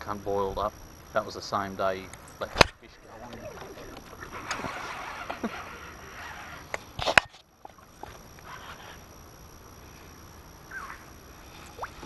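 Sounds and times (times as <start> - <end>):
outdoor ambience: 0.0 - 12.0.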